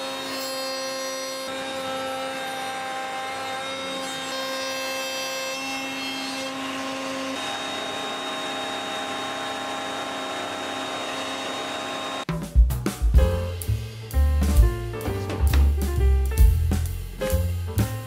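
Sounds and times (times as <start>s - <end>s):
power tool on wood: 0.0s - 12.3s.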